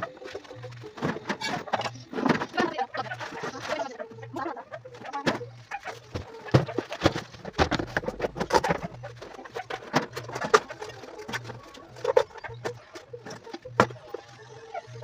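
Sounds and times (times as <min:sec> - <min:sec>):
objects knocking and clattering: 0:00.9 - 0:03.6, 0:05.1 - 0:14.0.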